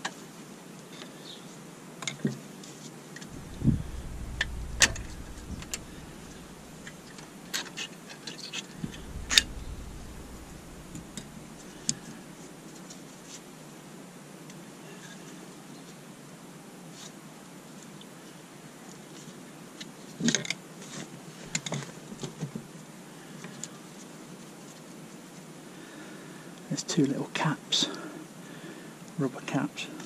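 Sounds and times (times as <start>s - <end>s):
low rumble: 3.3s - 7.6s, 8.8s - 12.6s.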